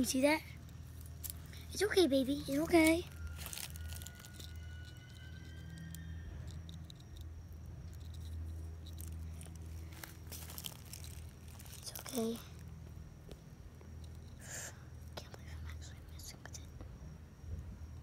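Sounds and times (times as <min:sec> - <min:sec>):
low steady hum: 0:00.0 - 0:18.0
fingers scratching on tree bark: 0:02.5 - 0:06.0.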